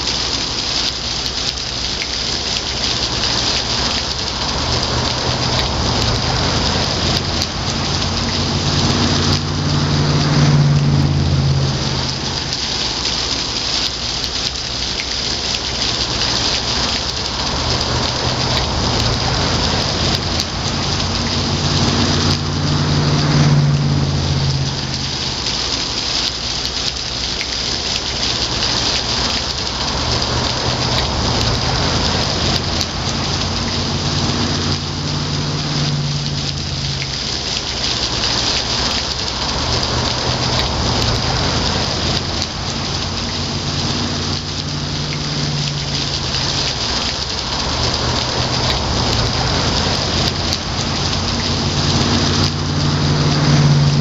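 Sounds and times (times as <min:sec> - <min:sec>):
waterfall splashing into pool: 0:00.0 - 0:54.0
low rumble: 0:03.9 - 0:13.4, 0:17.0 - 0:25.9.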